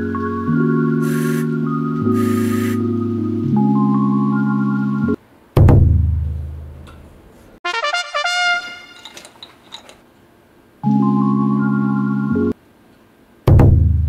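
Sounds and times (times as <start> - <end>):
small electric pump buzzing: 2.1 - 2.8.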